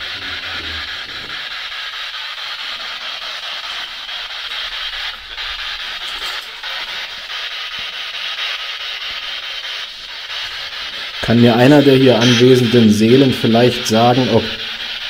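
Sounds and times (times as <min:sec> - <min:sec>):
radio static scanning channels: 0:00.0 - 0:08.1, 0:09.0 - 0:15.0.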